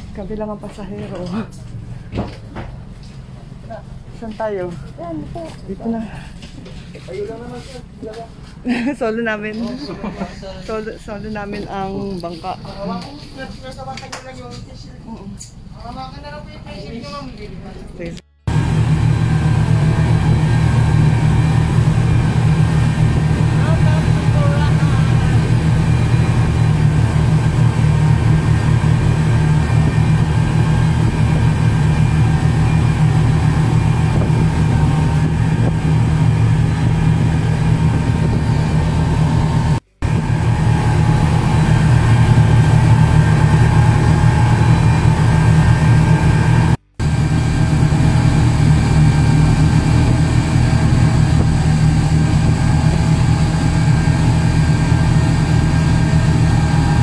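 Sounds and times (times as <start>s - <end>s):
speedboat engine drone: 0.0s - 13.5s, 14.9s - 57.0s
water and wind rushing: 18.5s - 57.0s.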